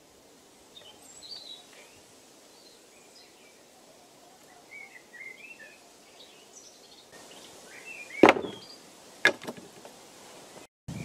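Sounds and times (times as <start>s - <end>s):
small birds chirping: 0.4s - 9.0s
cutting board knocking on table: 8.2s - 8.6s.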